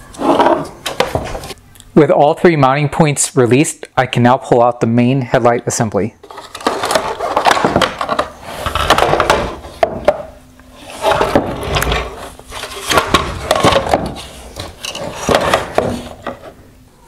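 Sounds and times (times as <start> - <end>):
plastic parts clattering and scraping: 6.2 - 16.6.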